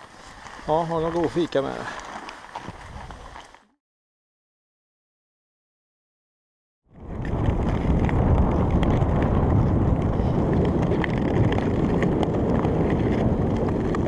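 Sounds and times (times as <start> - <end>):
skate blades scraping ice: 0.0 - 3.7, 7.2 - 14.0
wind noise on microphone: 2.6 - 3.5, 6.9 - 14.0.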